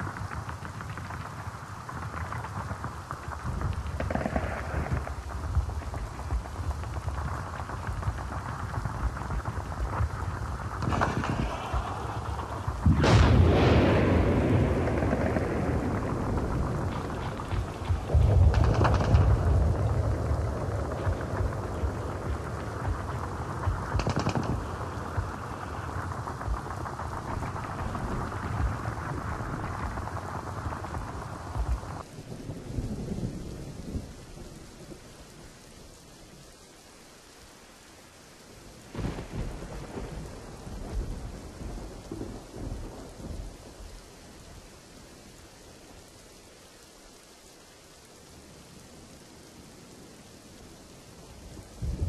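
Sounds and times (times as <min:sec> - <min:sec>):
sharp crack: 0:00.0 - 0:32.1
dense rain-like hiss: 0:00.0 - 0:52.0
deep rumbling booms: 0:02.5 - 0:32.0.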